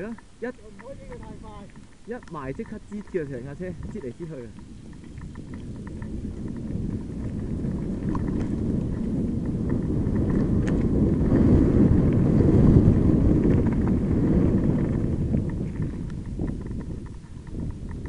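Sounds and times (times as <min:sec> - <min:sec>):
sharp ticks: 0:00.0 - 0:08.8, 0:14.9 - 0:18.0
wind on microphone: 0:00.0 - 0:18.0.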